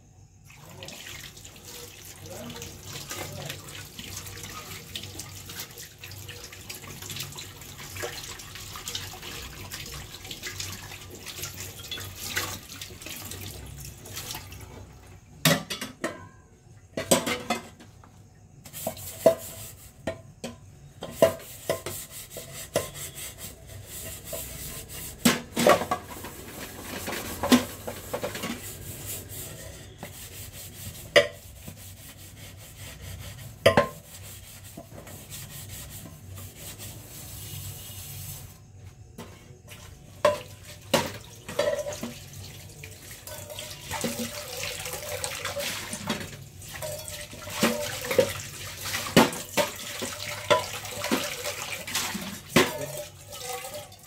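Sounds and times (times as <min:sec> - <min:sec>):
tap water running over metal plate: 0:00.4 - 0:16.1, 0:16.9 - 0:54.0
metal pots clanking in sink: 0:07.7 - 0:18.1, 0:18.8 - 0:30.2, 0:31.0 - 0:31.7, 0:33.6 - 0:35.4, 0:39.2 - 0:54.0.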